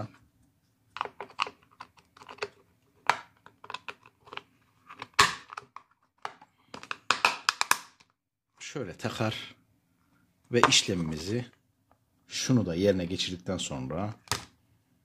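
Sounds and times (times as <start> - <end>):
plastic cover clicking into place: 5.0 - 8.1, 14.2 - 14.5.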